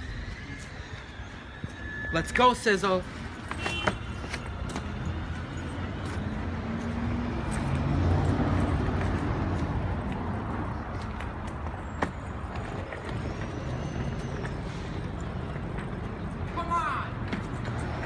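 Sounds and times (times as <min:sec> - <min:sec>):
vehicle passing rumble: 0:04.2 - 0:16.5.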